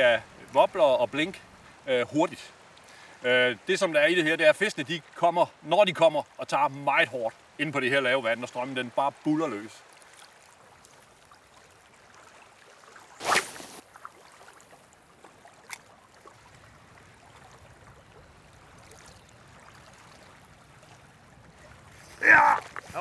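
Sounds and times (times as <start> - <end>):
sea water lapping: 4.8 - 23.0
short rush of noise: 13.2 - 13.8.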